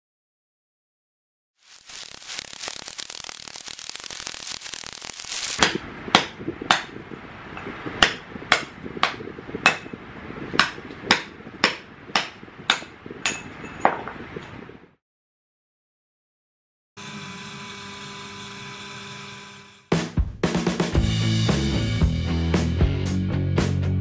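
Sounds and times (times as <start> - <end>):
hammer striking chisel into concrete: 5.6 - 7.0, 8.0 - 10.0, 10.6 - 14.0.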